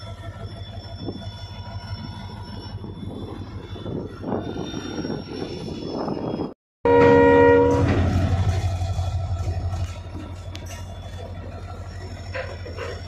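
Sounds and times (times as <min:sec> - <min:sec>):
thin high squeal: 0:00.0 - 0:06.5
diesel locomotive engine drone: 0:00.0 - 0:13.0
steel wheels rumbling on rails: 0:00.0 - 0:13.0.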